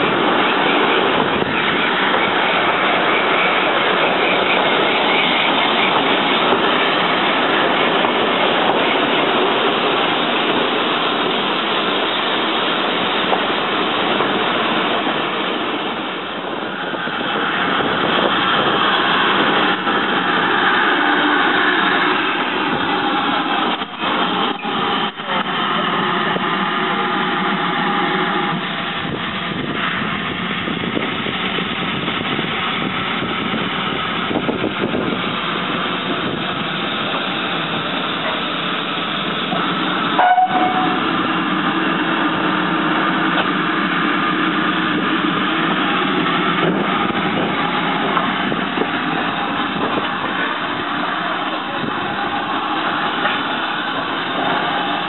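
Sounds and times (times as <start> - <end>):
steam locomotive hissing: 0.0 - 55.0
brief high note: 40.2 - 41.0.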